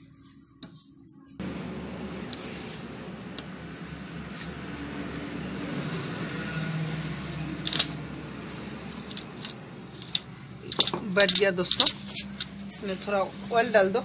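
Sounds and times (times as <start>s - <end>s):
metal gears clinking: 7.6s - 12.8s.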